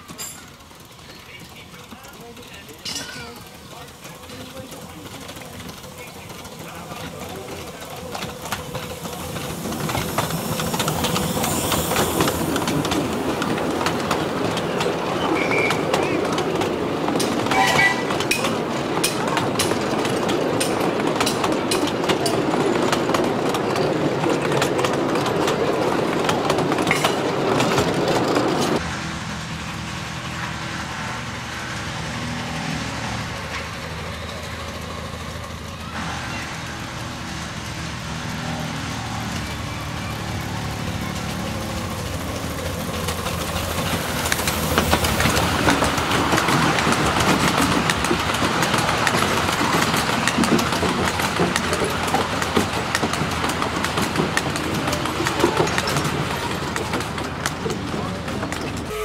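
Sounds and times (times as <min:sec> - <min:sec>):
train carriages rolling past: 0:00.0 - 0:59.0
wheels clicking over rail joints: 0:00.0 - 0:59.0
steam hissing: 0:00.7 - 0:17.9.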